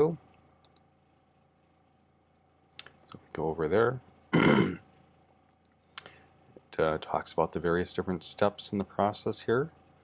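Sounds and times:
click: 0.3s - 3.9s.

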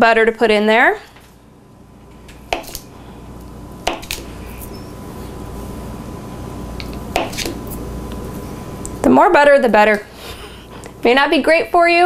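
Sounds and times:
low steady hum: 0.0s - 12.0s
knife slicing butter: 7.1s - 7.8s.

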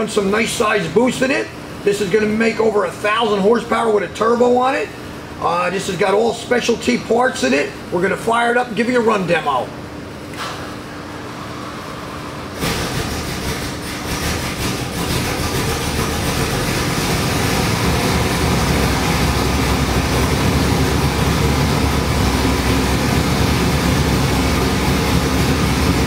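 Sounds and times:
engine running: 10.9s - 26.0s.

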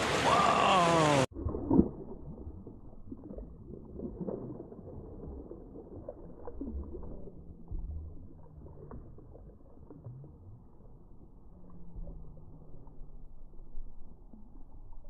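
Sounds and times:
fish thrashing and splashing: 0.0s - 10.4s
muffled wind and water rumble: 1.3s - 15.0s.

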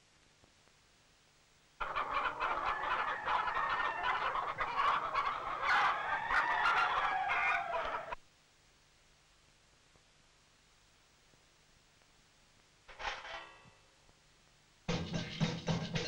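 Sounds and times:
chorus of gobbling calls: 1.8s - 8.2s.

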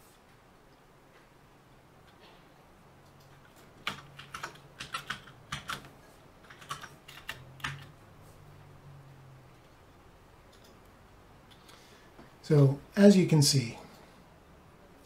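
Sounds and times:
typing on computer keyboard: 3.2s - 8.0s.

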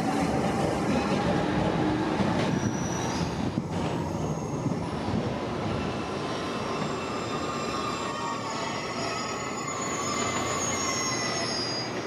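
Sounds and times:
train wheels rumbling on rails: 0.0s - 12.0s
high-pitched wheel squeals: 5.9s - 12.0s.

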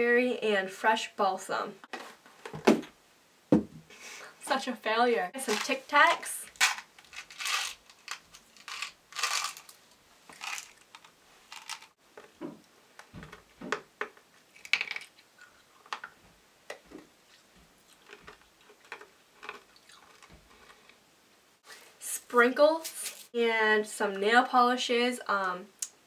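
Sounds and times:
small items clicking together: 5.4s - 12.0s, 14.6s - 15.2s.

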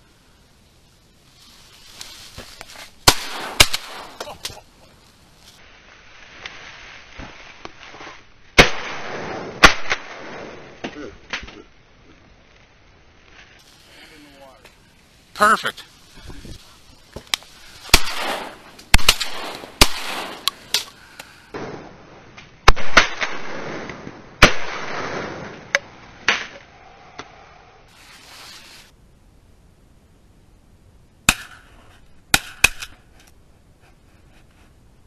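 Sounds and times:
shotgun shots with echo: 3.1s - 4.2s, 17.9s - 20.5s.

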